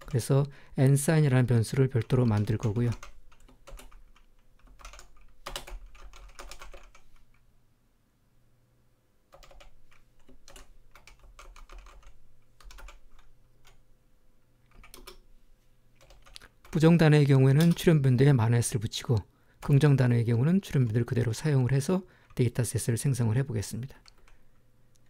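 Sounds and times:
computer keyboard typing: 0.0 - 0.2, 1.8 - 7.1, 9.3 - 13.8, 14.7 - 15.2, 16.0 - 16.9, 17.6 - 17.9.

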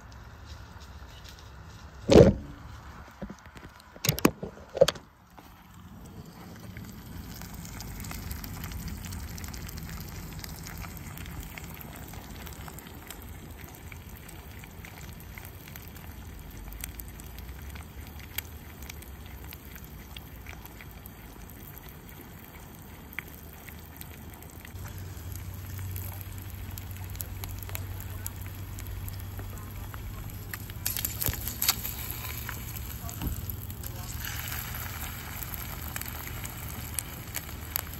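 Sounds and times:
sausages frying crackling: 5.1 - 37.9
eggs sizzling in a skillet: 5.4 - 37.9.

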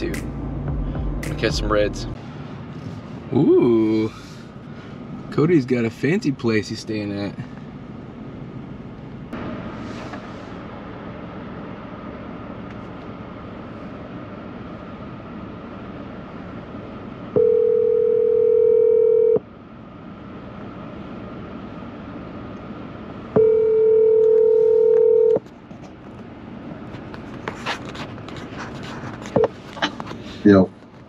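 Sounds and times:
cabin hum: 0.0 - 19.4
telephone ringback tone: 17.4 - 19.4, 23.4 - 25.4.

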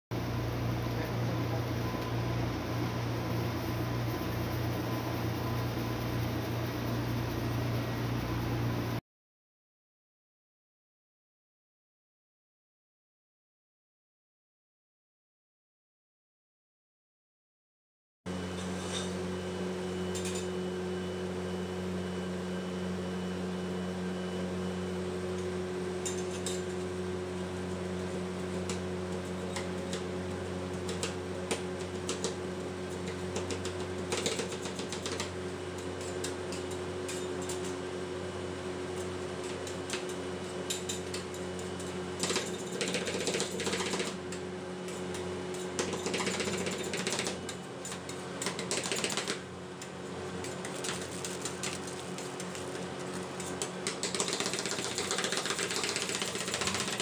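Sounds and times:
machine hum: 0.2 - 9.0.

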